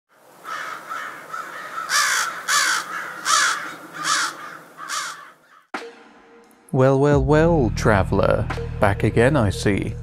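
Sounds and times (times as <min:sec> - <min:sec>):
crow cawing: 0:00.1 - 0:05.8.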